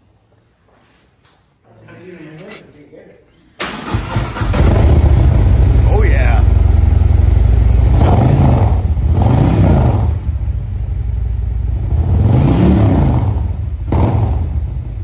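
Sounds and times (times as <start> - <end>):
sharp exhaust crack: 3.6 - 14.8
motorcycle engine idling and revving: 3.9 - 15.0.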